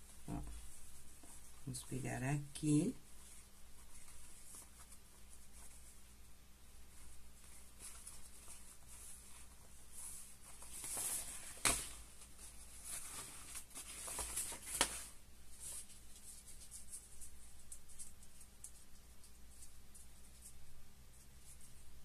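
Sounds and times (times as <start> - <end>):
raincoat fabric rustling: 0.0 - 2.1, 2.7 - 22.0.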